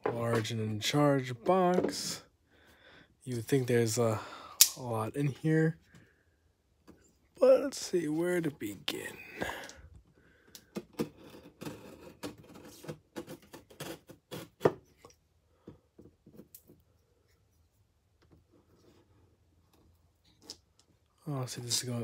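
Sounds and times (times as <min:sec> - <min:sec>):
knife and cardboard scrapes and clicks: 0:10.8 - 0:15.1.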